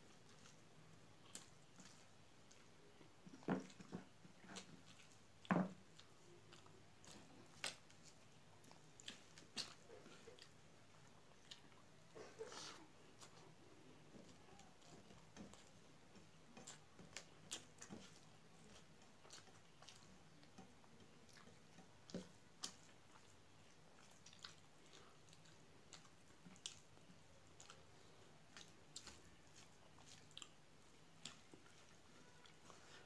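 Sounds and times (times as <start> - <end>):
person chewing: 0.0 - 33.0
hand mixing rice on steel plate: 12.4 - 23.1.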